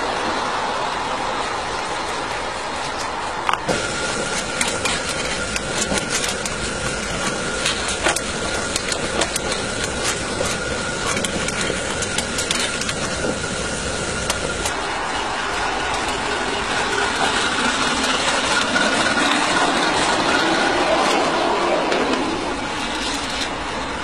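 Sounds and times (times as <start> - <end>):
steady hiss: 0.0 - 20.4
metal fire iron clinking and scraping: 3.6 - 14.8.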